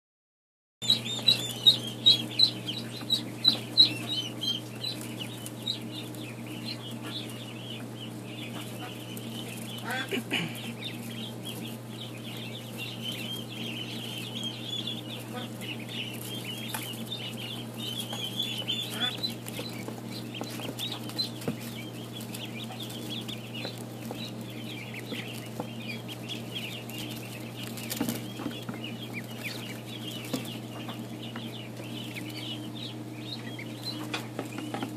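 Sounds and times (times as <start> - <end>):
ducklings peeping: 0.8 - 34.9
steady low hum: 0.8 - 34.9.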